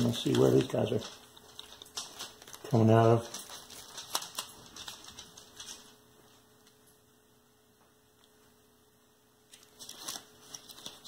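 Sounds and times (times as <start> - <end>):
packets crinkling and rustling: 0.0 - 6.0, 9.5 - 11.0
faint steady hum: 0.0 - 11.0.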